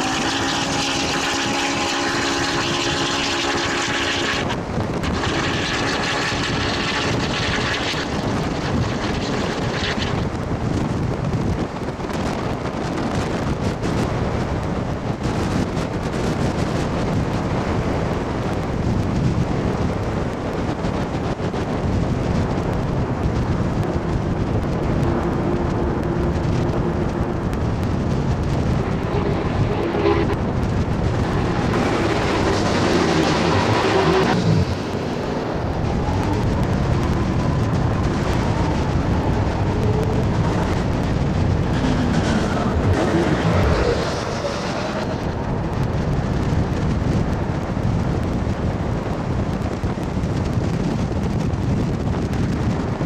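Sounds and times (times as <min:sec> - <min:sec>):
steam locomotive rumbling: 0:00.0 - 0:53.0
wind noise on microphone: 0:00.0 - 0:53.0.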